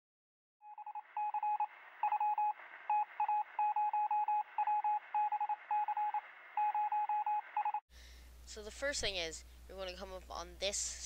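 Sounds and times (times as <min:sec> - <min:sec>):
morse code beeps: 0:00.7 - 0:07.8.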